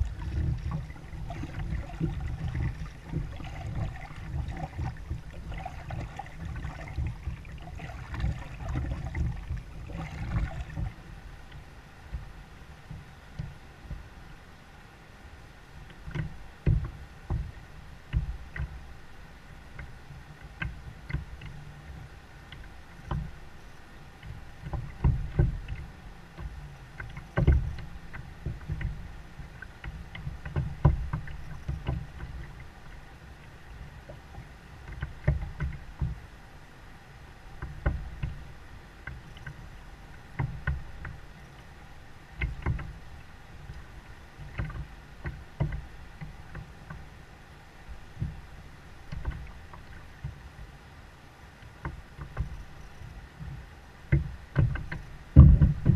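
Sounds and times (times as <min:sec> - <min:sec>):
dull knocks on plastic hull: 0:16.1 - 0:17.5, 0:24.6 - 0:25.6, 0:26.4 - 0:29.0, 0:29.8 - 0:32.6, 0:44.4 - 0:47.0, 0:53.4 - 0:55.9.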